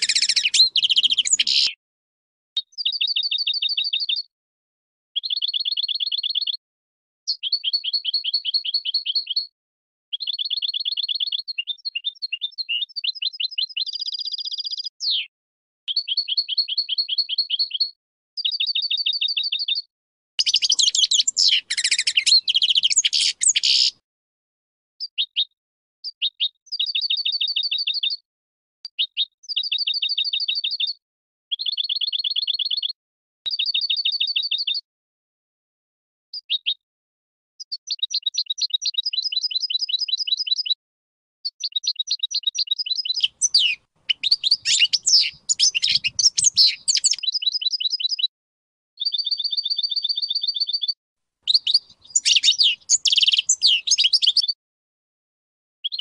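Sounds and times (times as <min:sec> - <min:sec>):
goldfinch chirping: 0:00.0 - 0:01.8, 0:02.8 - 0:04.2, 0:10.2 - 0:15.2, 0:18.4 - 0:19.8, 0:20.4 - 0:24.0, 0:33.5 - 0:34.8, 0:41.6 - 0:48.3, 0:49.0 - 0:50.9, 0:51.5 - 0:54.5
harsh bird twittering: 0:00.0 - 0:01.8, 0:02.6 - 0:04.2, 0:05.2 - 0:06.6, 0:10.1 - 0:15.3, 0:18.4 - 0:19.8, 0:20.4 - 0:24.0, 0:41.6 - 0:48.3, 0:49.0 - 0:50.9, 0:51.5 - 0:54.6.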